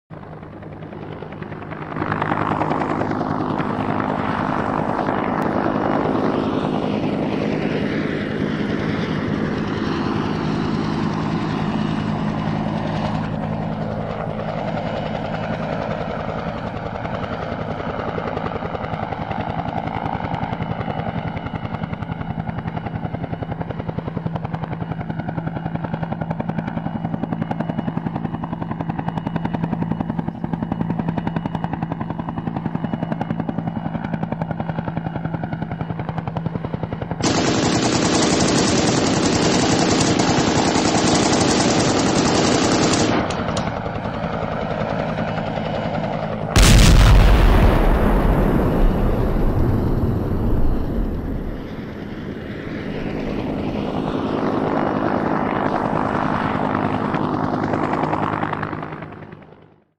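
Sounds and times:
helicopter flying: 0.1s - 59.9s.

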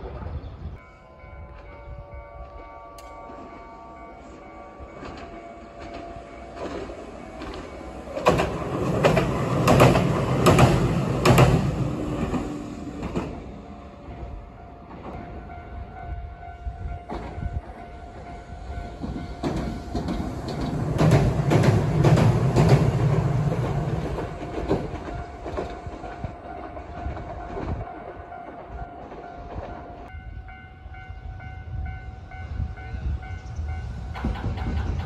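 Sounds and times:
higher crossing bell pulsing: 0.8s - 8.8s, 12.8s - 20.4s
tram wheels clattering over rails: 4.9s - 15.8s, 16.9s - 30.1s, 33.7s - 35.0s.

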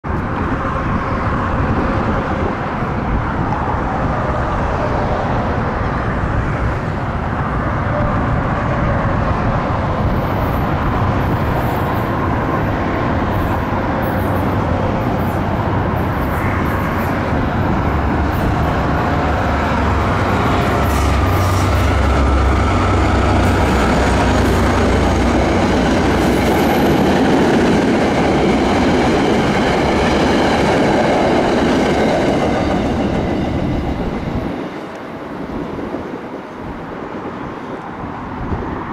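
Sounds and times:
diesel locomotive engine drone: 0.0s - 38.9s
train wheels clicking on rails: 9.1s - 36.3s.

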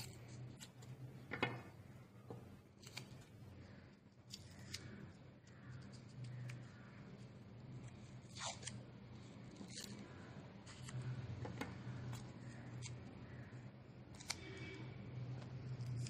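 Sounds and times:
paper tape ripping and rustling: 8.2s - 8.8s.

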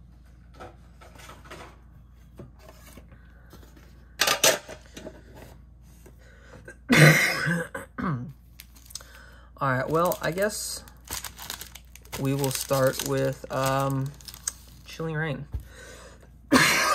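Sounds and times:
person coughing: 6.7s - 8.4s, 16.5s - 16.9s.

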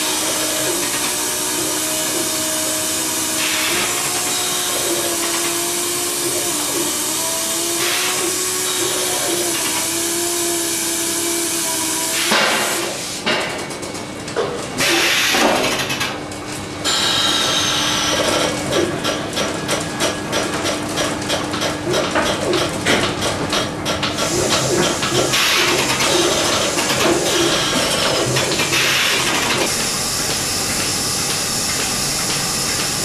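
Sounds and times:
air hissing in bursts: 0.0s - 5.0s, 5.8s - 13.3s
steady machine hum: 0.0s - 33.0s.

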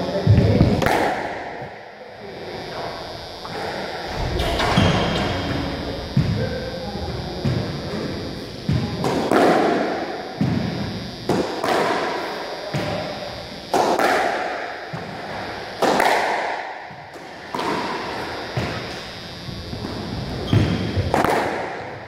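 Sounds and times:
squash ball hits echoing: 0.3s - 1.8s, 3.5s - 8.1s, 8.7s - 13.1s, 13.7s - 19.2s, 20.4s - 22.0s.

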